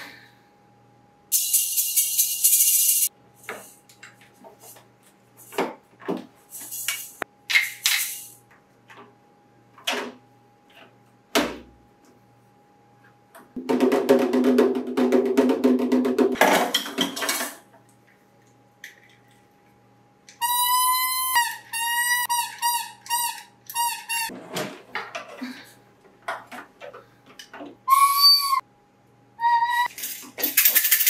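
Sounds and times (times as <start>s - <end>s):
toy drum clatter: 1.3s - 3.1s, 29.8s - 31.0s
plastic toy horn tooting: 20.4s - 24.3s, 27.9s - 28.6s.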